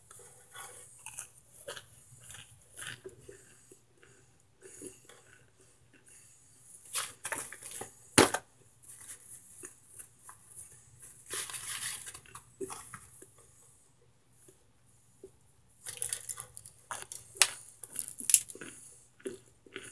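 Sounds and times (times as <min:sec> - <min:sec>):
crunchy crackles in foil pan: 0:11.2 - 0:12.8, 0:15.9 - 0:18.6.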